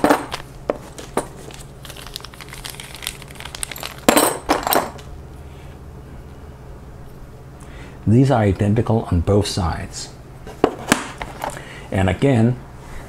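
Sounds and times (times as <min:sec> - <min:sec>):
plastic bag crinkling: 0:00.0 - 0:05.1.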